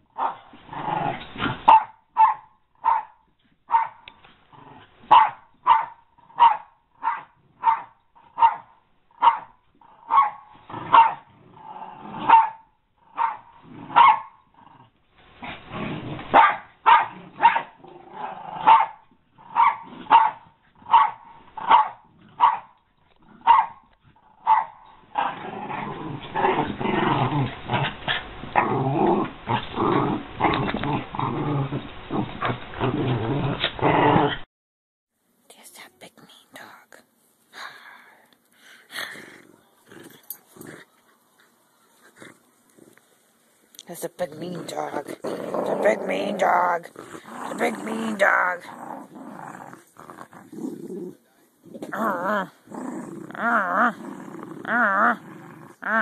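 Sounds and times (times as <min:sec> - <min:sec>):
dog growling and snarling: 0:00.2 - 0:01.8, 0:04.4 - 0:05.2, 0:09.8 - 0:34.5, 0:38.9 - 0:41.0, 0:42.0 - 0:43.0, 0:44.3 - 0:56.0
dog barking sharply: 0:01.7 - 0:03.1, 0:03.7 - 0:04.0, 0:05.1 - 0:09.5, 0:10.1 - 0:11.2, 0:12.3 - 0:12.6, 0:14.0 - 0:14.3, 0:16.4 - 0:17.7, 0:18.7 - 0:19.0, 0:19.6 - 0:22.7, 0:23.5 - 0:23.8, 0:24.5 - 0:24.8.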